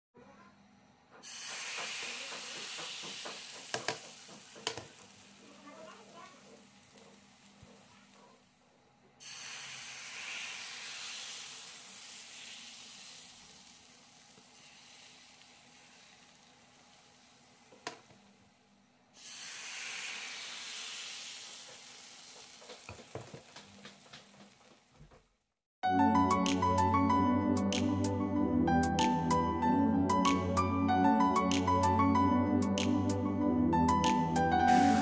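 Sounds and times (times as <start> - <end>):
batter sizzling in a hot pan: 1.2 - 8.2, 9.2 - 18.6, 19.2 - 24.8, 34.7 - 35.0.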